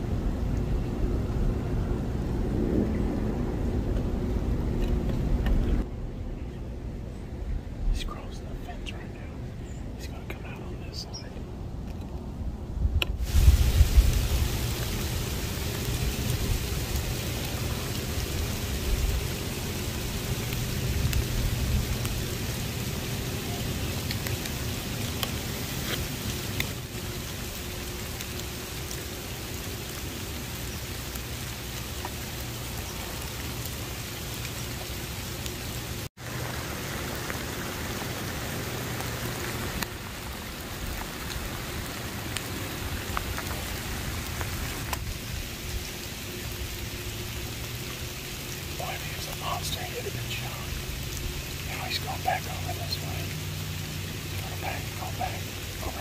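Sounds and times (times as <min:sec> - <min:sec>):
low rumble: 0:00.0 - 0:25.6
steady rain falling: 0:00.0 - 0:56.0.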